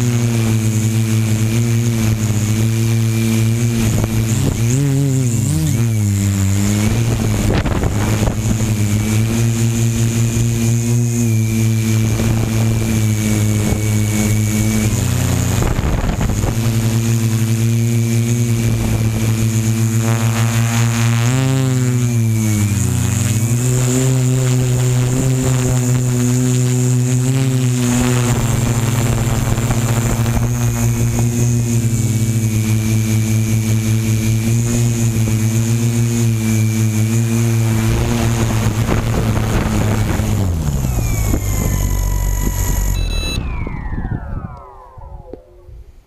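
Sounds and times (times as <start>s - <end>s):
drone propellers buzzing: 0.0s - 46.0s
high-pitched whine: 0.0s - 46.0s.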